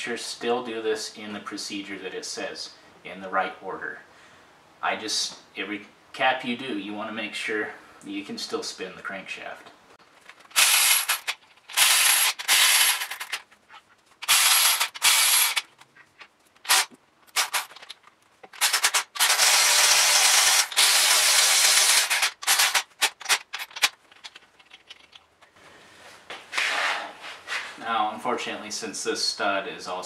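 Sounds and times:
electric ratchet running: 10.5s - 13.4s, 14.2s - 15.6s, 16.7s - 17.8s, 18.6s - 23.4s.

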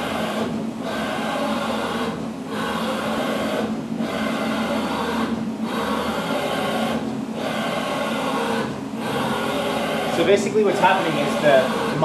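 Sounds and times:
machine axis drives whirring: 0.0s - 12.0s.

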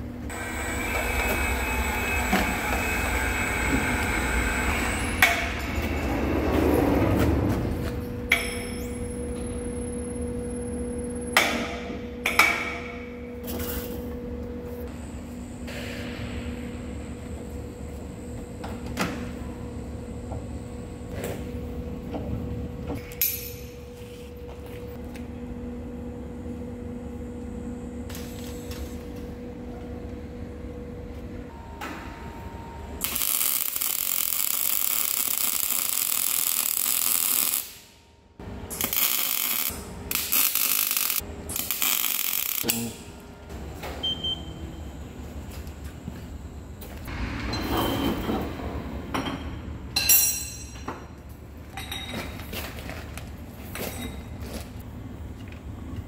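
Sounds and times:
lathe humming: 0.3s - 5.8s.

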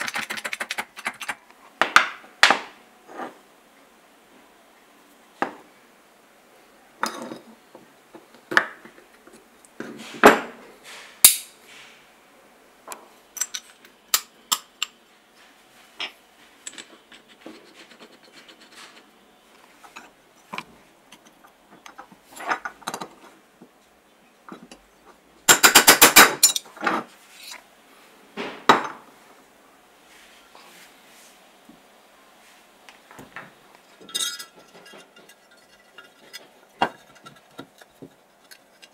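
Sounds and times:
small metal parts clinking: 25.5s - 26.7s, 34.0s - 38.9s.

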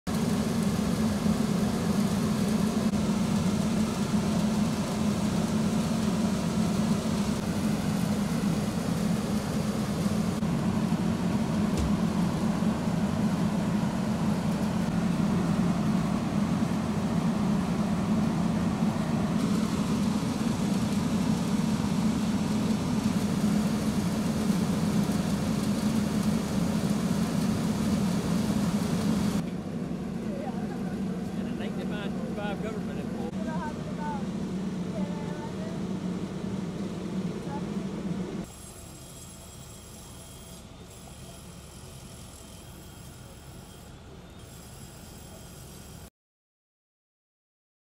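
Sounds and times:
street noise: 0.1s - 46.0s
truck engine idling: 0.2s - 38.5s.

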